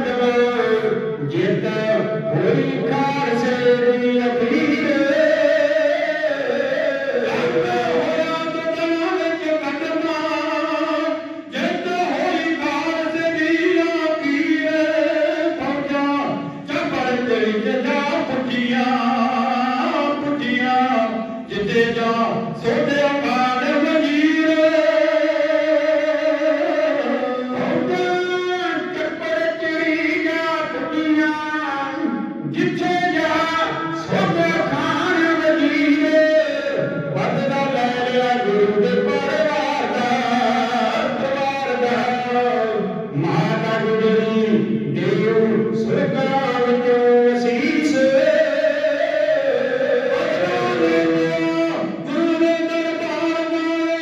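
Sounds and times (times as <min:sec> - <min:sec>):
men singing unaccompanied: 0:00.0 - 0:31.4, 0:32.6 - 0:54.0.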